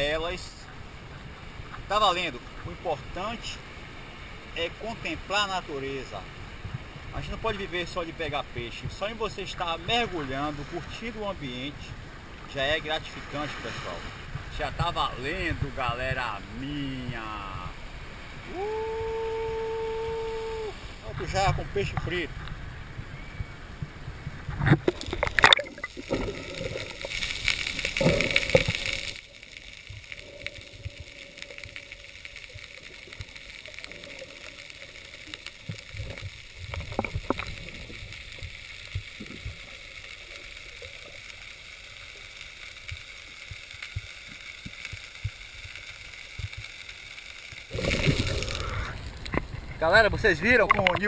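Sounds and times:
rushing water: 0.0 - 51.0
small clicks and crackles: 23.8 - 51.0
underwater hiss: 24.9 - 49.3.

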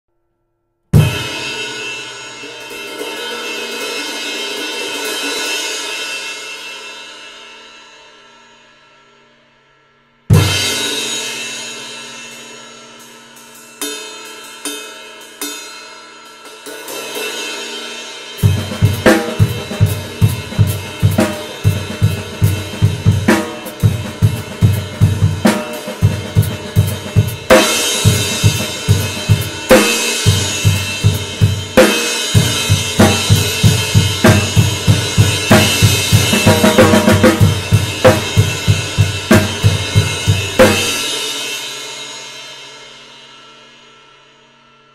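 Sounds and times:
bass drum: 18.4 - 41.1
snare drum: 18.4 - 41.2.

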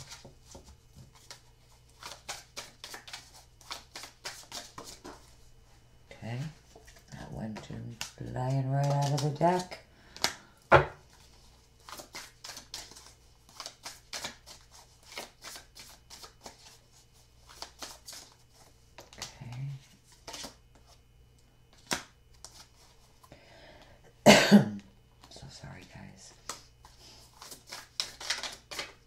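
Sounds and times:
cards being shuffled: 0.0 - 5.3, 6.8 - 10.4, 11.1 - 21.0, 26.3 - 29.0.

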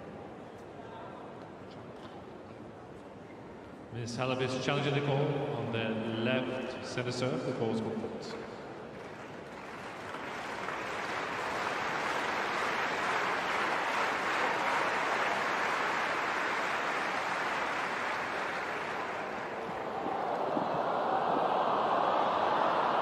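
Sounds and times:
crowd clapping: 8.3 - 23.0.

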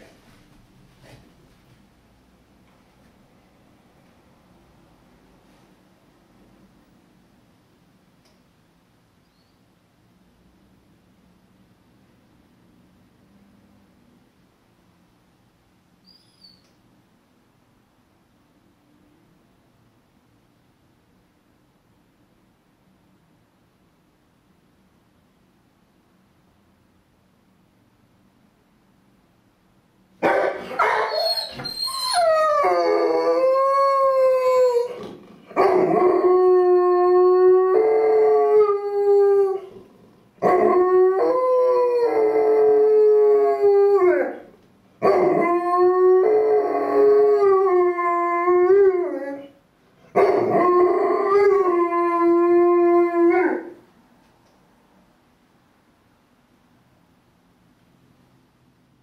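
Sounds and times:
dog howling: 30.4 - 39.8, 40.4 - 53.8.

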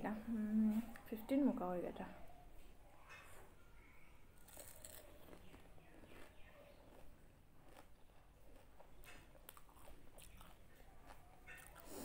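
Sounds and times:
faint chewing: 2.6 - 12.0
crisp shell crunching: 4.4 - 6.3.

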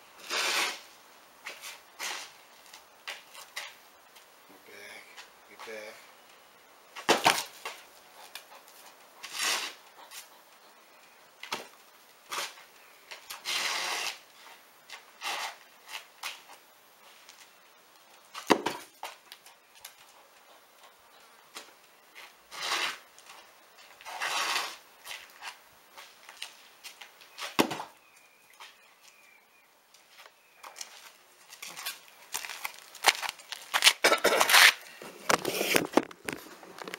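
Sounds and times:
ball kick thuds: 18.4 - 18.9, 27.5 - 27.9
scraping scuffs: 21.5 - 29.2, 29.9 - 36.9.

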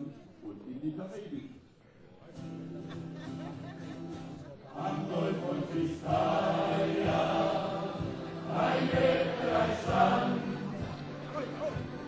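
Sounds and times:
steady musical accompaniment: 4.7 - 12.0
men singing in chorus: 4.8 - 11.2.

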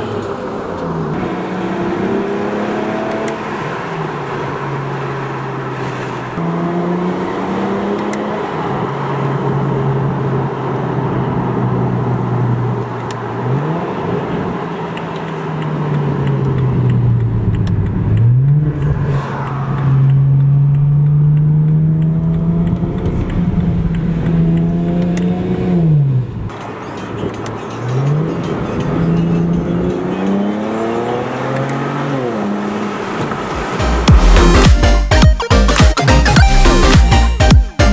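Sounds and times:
car exhaust droning: 8.6 - 31.4.

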